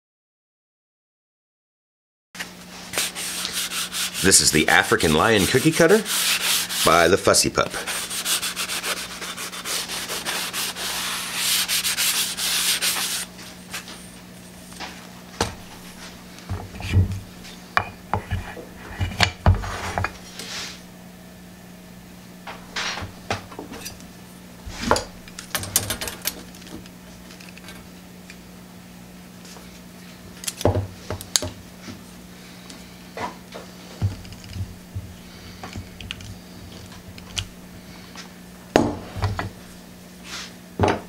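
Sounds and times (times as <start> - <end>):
faint steady hum: 2.4 - 41.0
sanding block rubbing wood: 2.8 - 14.1
taps and thumps on wood: 34.0 - 35.9, 40.8 - 41.0.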